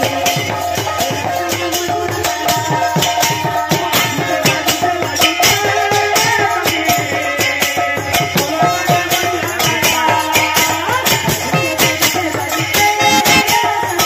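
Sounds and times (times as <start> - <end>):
drums beaten in fast rhythm: 0.0 - 14.0
held melodic tones: 10.8 - 14.0.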